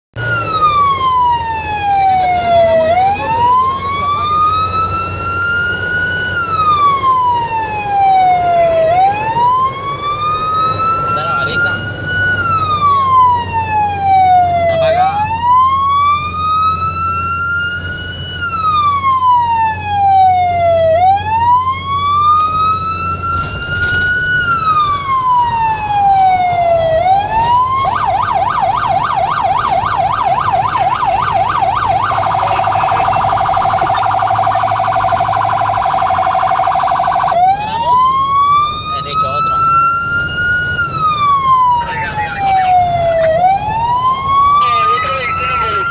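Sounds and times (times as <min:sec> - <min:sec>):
emergency vehicle siren: 0:00.1 - 0:45.9
engine and road hum: 0:00.1 - 0:45.9.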